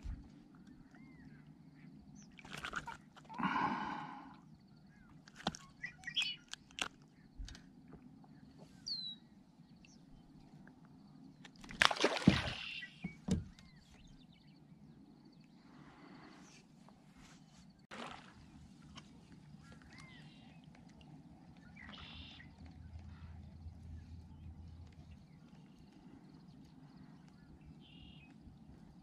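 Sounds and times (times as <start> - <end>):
bird chirp: 4.6 - 6.6, 8.4 - 10.4, 12.4 - 16.2, 21.4 - 28.9
fishing gear knocks and clicks: 6.2 - 7.6.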